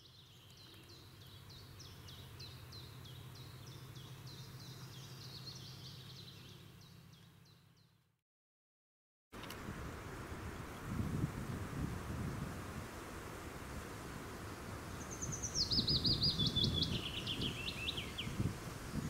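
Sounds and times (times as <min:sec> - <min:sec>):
songbird singing high notes: 0:15.0 - 0:18.4.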